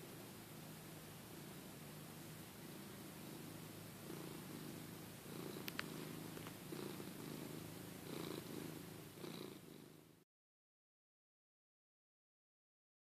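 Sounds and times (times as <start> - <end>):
cat purring: 0.0 - 10.2.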